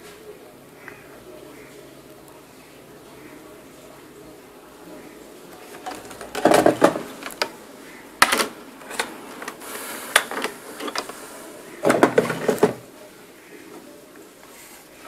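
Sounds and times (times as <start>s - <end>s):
motherboard rattling on workbench: 5.6s - 7.5s, 11.8s - 12.8s.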